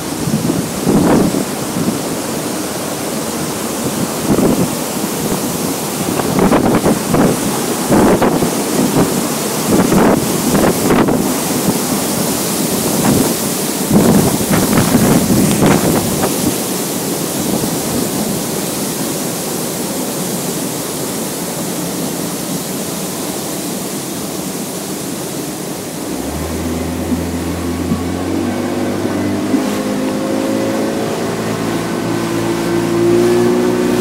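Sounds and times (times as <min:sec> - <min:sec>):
wind buffeting microphone: 0:00.0 - 0:02.6, 0:03.4 - 0:18.6
waterfall rushing: 0:00.0 - 0:34.0.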